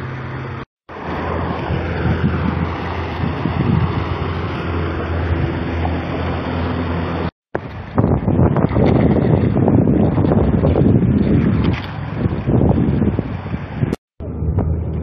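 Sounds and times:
fast river rushing: 0:00.0 - 0:08.1
wind buffeting microphone: 0:00.0 - 0:15.0.

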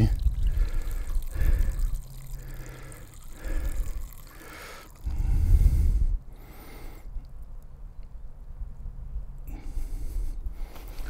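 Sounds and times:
water trickling: 0:00.0 - 0:06.0
low rumbling bursts: 0:00.0 - 0:07.6.

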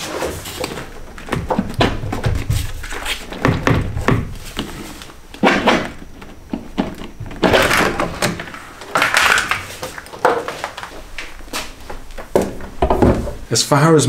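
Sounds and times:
plastic knocks scrapes and rattles: 0:00.0 - 0:11.1.

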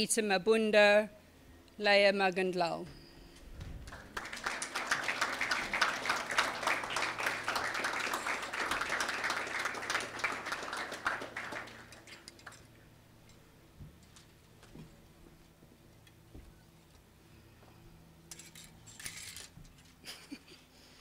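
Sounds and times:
audience clapping: 0:03.8 - 0:12.8.

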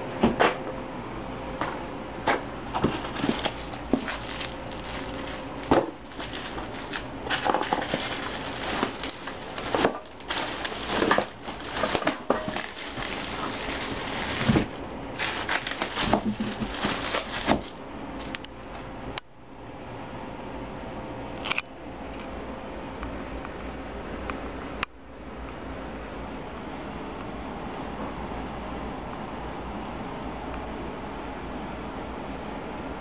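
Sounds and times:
plastic wrapping crinkling: 0:02.7 - 0:18.9.

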